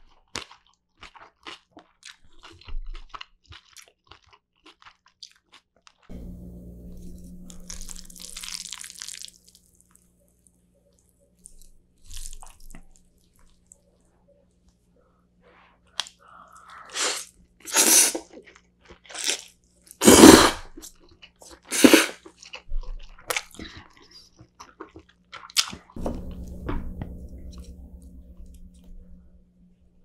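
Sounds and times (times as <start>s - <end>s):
chewing: 0.0s - 6.1s, 7.2s - 14.8s, 20.7s - 26.4s
slurping noodles: 16.8s - 18.3s, 20.0s - 20.8s, 21.6s - 22.2s.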